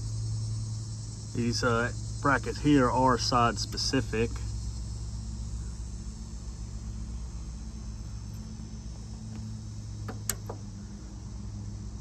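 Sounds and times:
insects chirring: 0.0s - 12.0s
low steady hum: 0.0s - 12.0s
metal bracket clicking: 10.1s - 10.6s.

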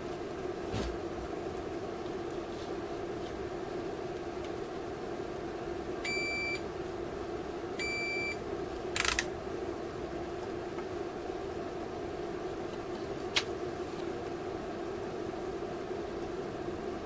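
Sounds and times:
steady background hum: 0.0s - 17.0s
multimeter continuity beeps: 6.0s - 6.6s, 7.8s - 8.4s.

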